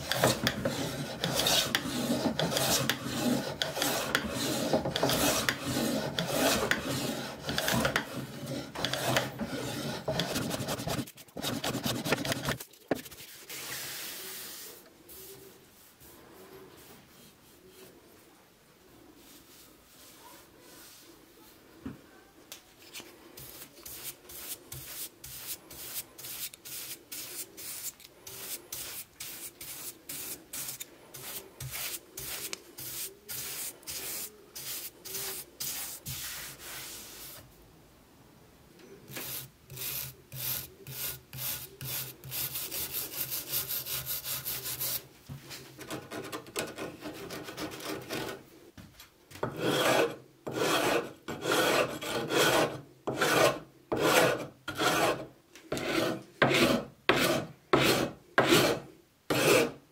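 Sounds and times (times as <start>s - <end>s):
metal file rasping on wood: 0.0s - 12.5s, 49.5s - 59.8s
bristle brush scrubbing wood: 23.5s - 37.3s.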